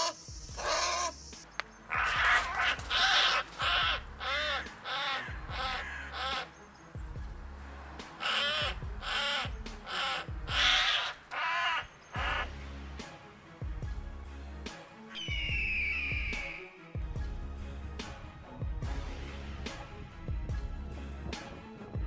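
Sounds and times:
crow cawing harshly: 0.6s - 1.1s, 1.9s - 6.5s, 8.2s - 12.5s.

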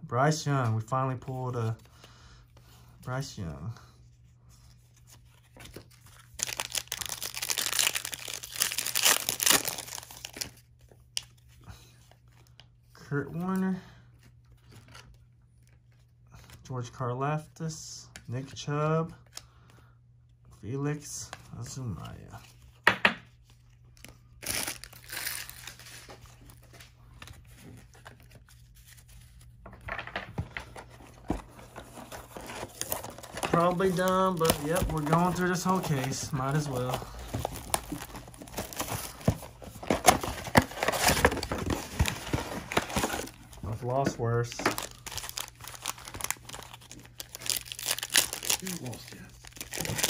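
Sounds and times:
plastic wrapper tearing and crinkling: 5.7s - 10.6s, 24.0s - 26.8s, 31.5s - 43.6s, 44.4s - 50.0s.

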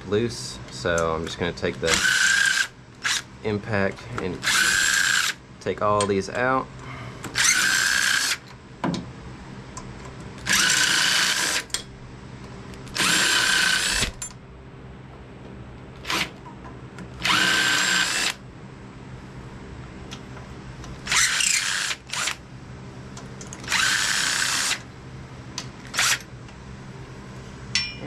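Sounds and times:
cordless impact driver bursts: 1.9s - 3.2s, 4.4s - 5.4s, 7.4s - 8.4s, 10.4s - 11.7s, 12.9s - 14.1s, 17.2s - 18.4s, 21.1s - 22.4s, 23.7s - 24.8s, 25.9s - 26.2s.

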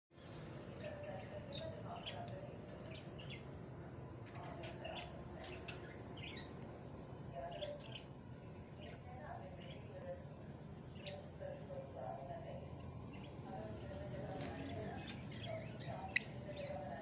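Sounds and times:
low background hum: 0.2s - 17.0s
lovebirds chirping: 13.0s - 17.0s.

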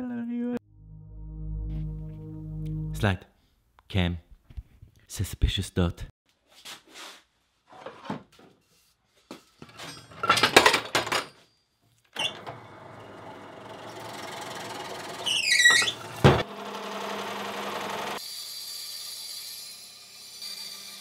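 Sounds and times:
drill press motor running: 12.3s - 18.2s.

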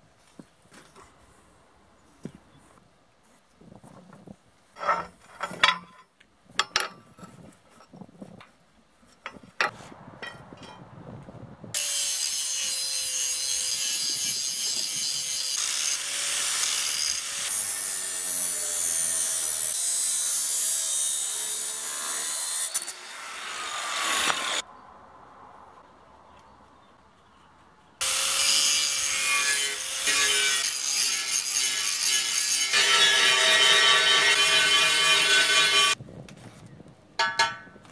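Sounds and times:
angle grinder cutting steel: 11.8s - 24.6s, 28.0s - 36.0s
metal clanks: 37.2s - 37.8s.

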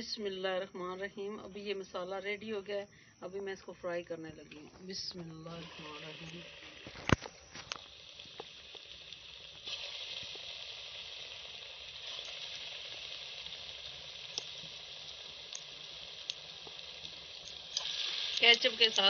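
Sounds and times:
chicken deep-frying sizzle: 5.5s - 19.0s
small oil pops: 6.2s - 10.5s, 12.1s - 12.5s, 14.3s - 19.0s.

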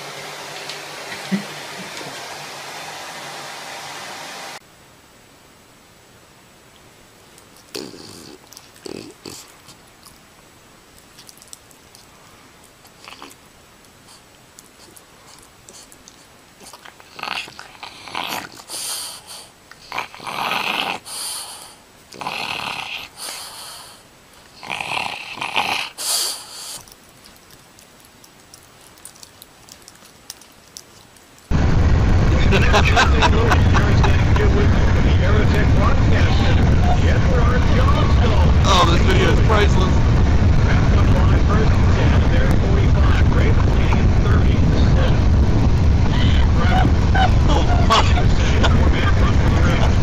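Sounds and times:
puppy breathy vocal sounds: 7.6s - 10.2s, 14.0s - 31.5s
faint rustles and clicks: 26.6s - 31.5s.

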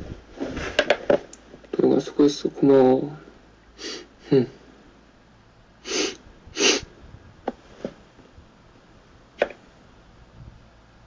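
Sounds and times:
man breathing puffs: 3.8s - 4.6s, 5.8s - 6.9s.

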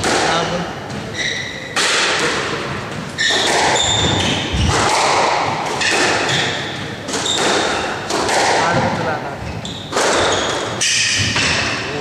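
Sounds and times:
shoe squeaks on wooden floor: 1.0s - 1.8s, 3.1s - 4.8s, 5.8s - 8.0s, 9.4s - 11.4s
squash ball thudding off walls: 1.8s - 9.0s.

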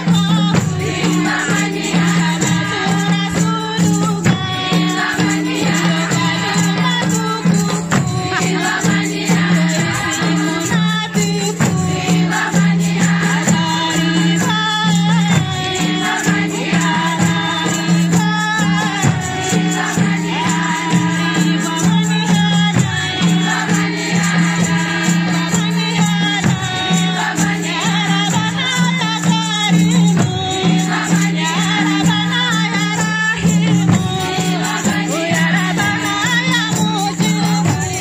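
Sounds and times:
hand-beaten frame drums: 0.0s - 38.0s
rattling percussion: 0.0s - 38.0s
women singing together: 0.0s - 38.0s.

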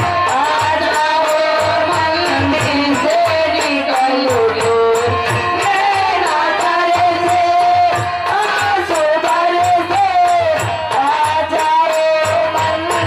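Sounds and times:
metallic jingling percussion: 0.0s - 13.0s.

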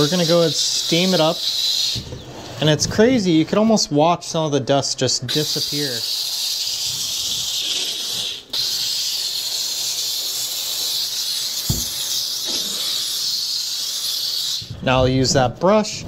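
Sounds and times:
steam cleaner hissing: 0.0s - 4.0s, 5.0s - 15.0s
low thump: 11.7s - 12.0s.

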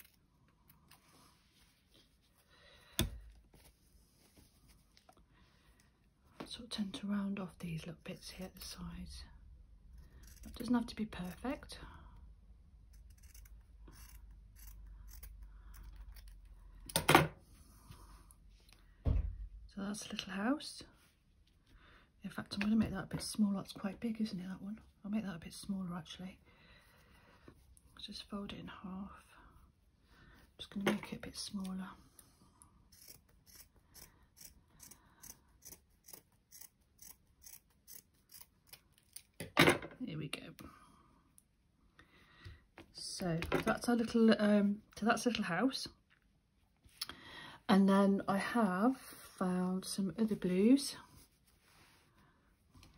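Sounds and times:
scissors snipping fabric: 12.8s - 16.5s, 32.9s - 39.4s.

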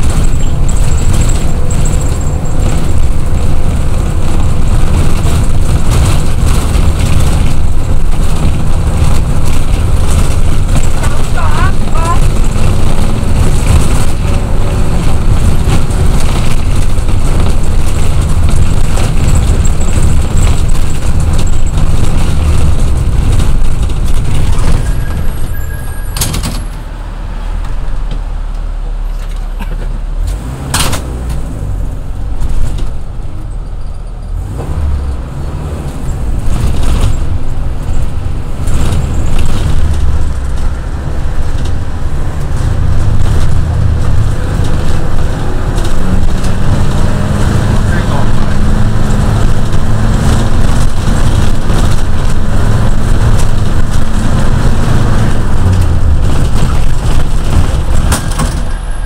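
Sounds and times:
minibus engine and road noise: 0.0s - 59.0s.

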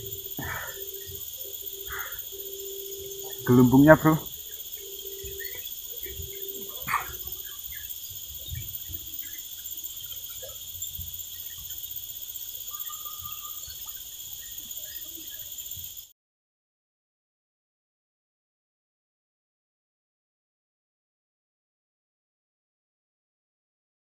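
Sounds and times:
loud bird call: 0.0s - 9.4s, 12.6s - 14.0s
bird chirps: 0.0s - 16.1s
high-pitched insect chorus: 0.0s - 16.1s
short held whistle: 12.7s - 13.8s.

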